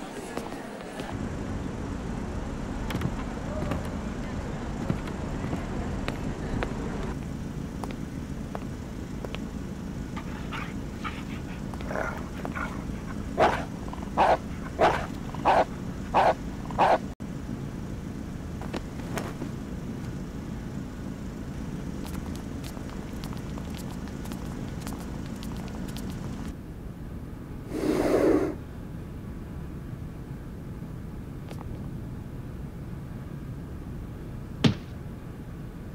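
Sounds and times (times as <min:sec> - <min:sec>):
low vehicle rumble: 0:00.0 - 0:27.7
dog barking: 0:10.2 - 0:17.1.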